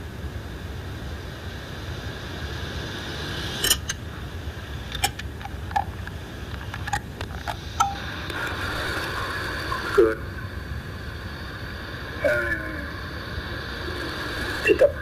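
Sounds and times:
recording hum and hiss: 0.0 - 15.0
sharp clicks and knocks: 4.9 - 8.0.

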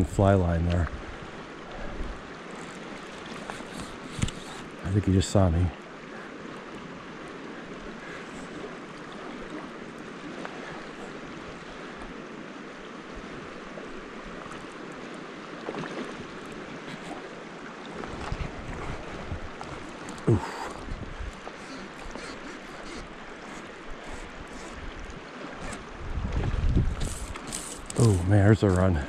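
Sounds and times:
fast-flowing creek rushing: 0.0 - 29.0
wind buffeting microphone: 18.0 - 29.0.

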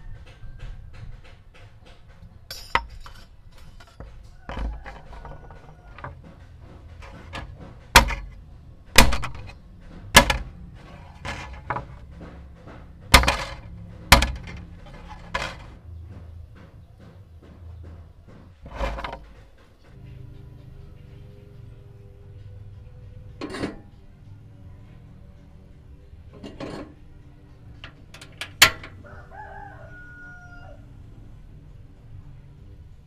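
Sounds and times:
metal strips clattering on wood: 1.2 - 15.8, 18.3 - 19.8, 27.8 - 29.0.

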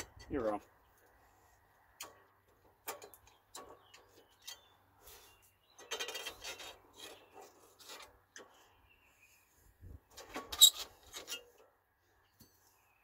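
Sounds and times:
metal tools scraping and clicking: 5.8 - 8.5, 10.2 - 11.7.

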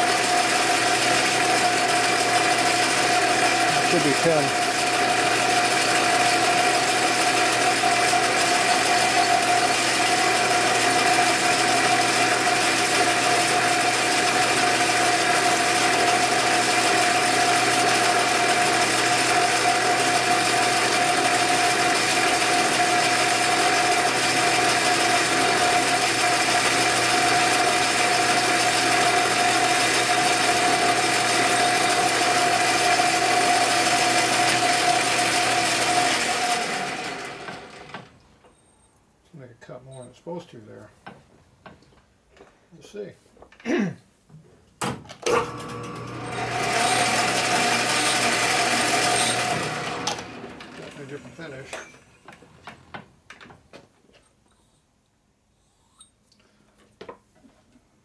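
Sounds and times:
metal lathe gear whine and clatter: 45.3 - 52.2.

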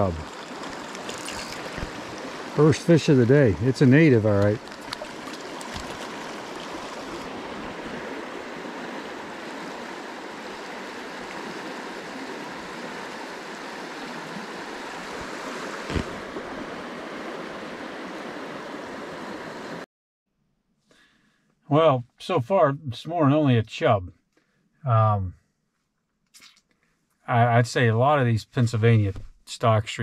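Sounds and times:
stream rushing over rocks: 0.0 - 19.8.

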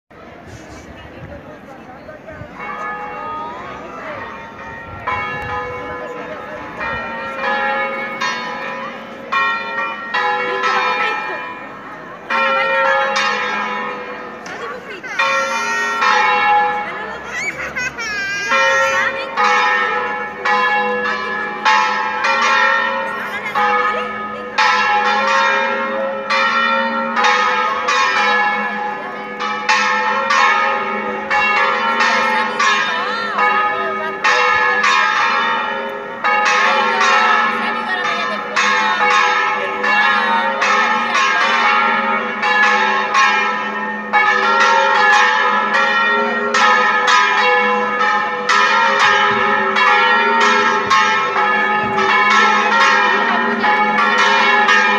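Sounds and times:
church bells ringing: 1.2 - 54.9.

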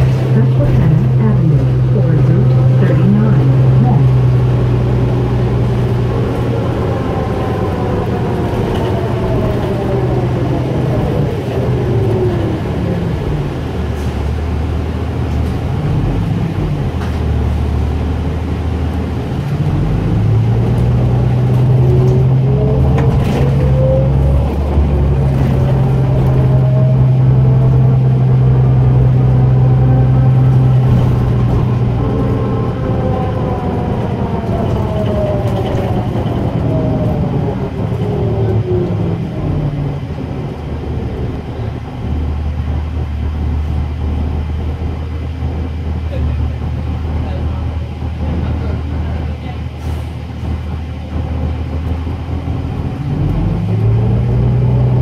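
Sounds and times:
diesel engine drone: 0.0 - 55.0.

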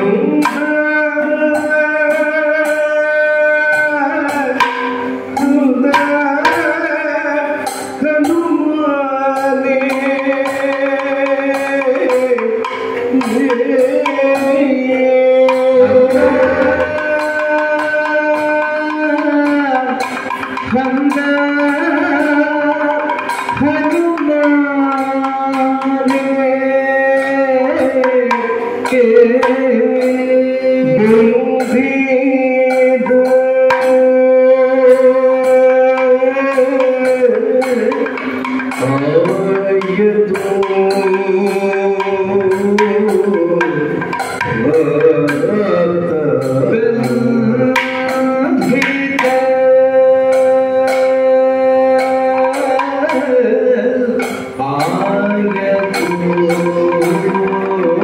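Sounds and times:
man singing ornamented melody: 13.2 - 20.1, 20.7 - 58.0
steady held notes: 14.8 - 18.5
sharp percussion strokes: 15.4 - 18.6.

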